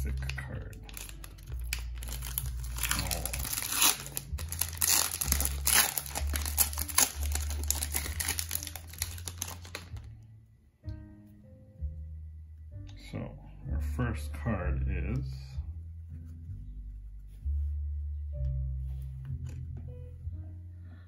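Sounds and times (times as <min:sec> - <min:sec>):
background music with bass line: 0:00.0 - 0:21.0
foil pack tearing and crinkling: 0:00.2 - 0:10.0.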